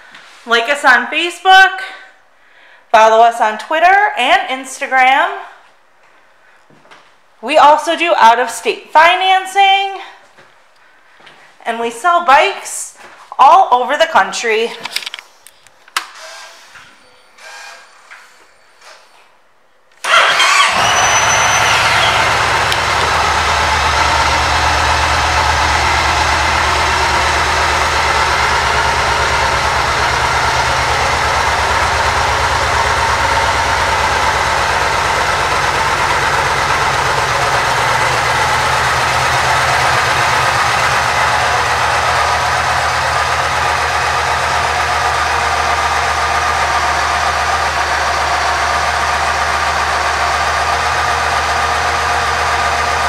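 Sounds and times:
motorcycle engine idling: 20.1s - 53.0s.

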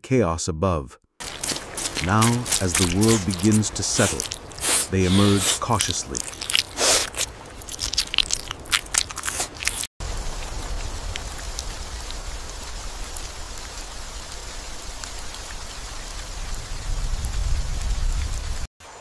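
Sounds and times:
small animal nibbling seeds: 1.2s - 9.9s.

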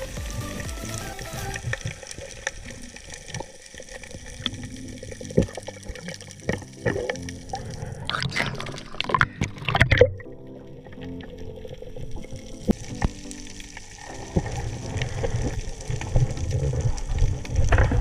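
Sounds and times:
water splashing and churning: 0.0s - 18.0s
clicks and knocks underwater: 1.2s - 18.0s
muffled underwater sound: 1.2s - 18.0s.

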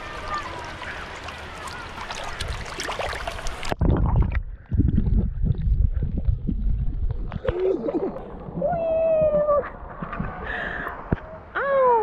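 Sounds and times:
water splashing: 0.0s - 10.5s
heavy choppy rumble: 3.6s - 11.2s.

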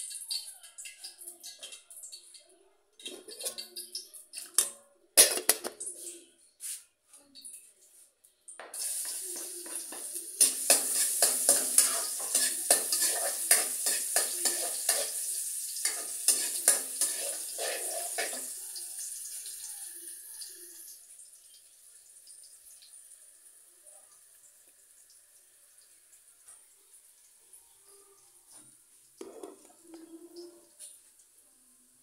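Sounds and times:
food sizzling in a wok: 8.6s - 32.0s
spatula scraping metal pan: 9.0s - 18.6s.

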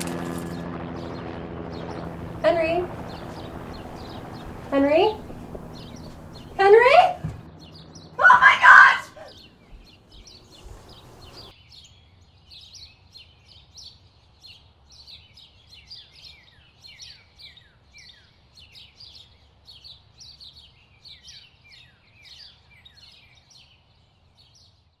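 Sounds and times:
small birds chirping: 0.1s - 24.8s.

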